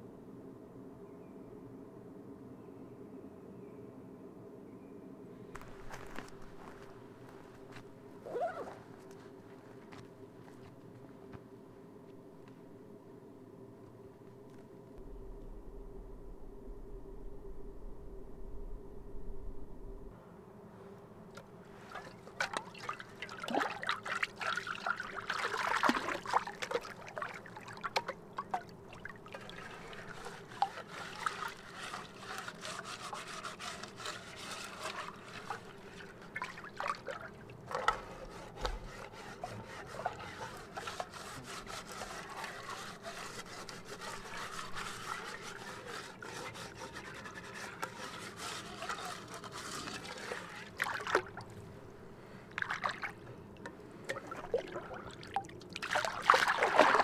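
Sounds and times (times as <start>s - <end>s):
water trickling and splashing: 21.7s - 51.7s, 52.5s - 57.0s
scrubbing metal pot: 21.8s - 51.4s.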